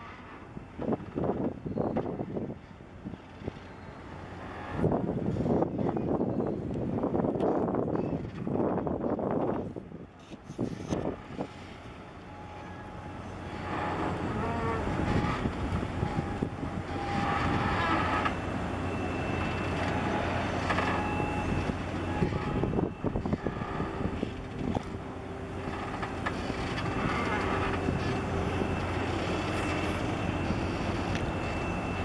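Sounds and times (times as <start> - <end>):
faint steady machinery tones: 0.0 - 32.0
ship engines rumbling: 0.0 - 32.0.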